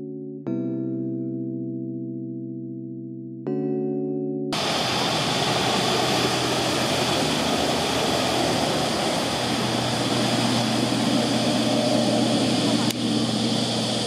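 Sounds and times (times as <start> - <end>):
rush of water: 4.6 - 12.9
boat engine running steadily: 4.6 - 14.0.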